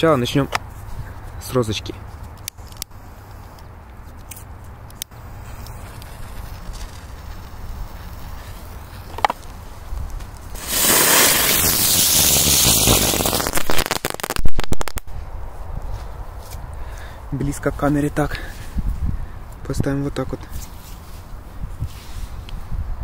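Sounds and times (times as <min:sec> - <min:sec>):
firework spraying sparks hiss: 0:05.1 - 0:09.4, 0:10.5 - 0:15.0
firework sharp bangs: 0:10.6 - 0:15.1.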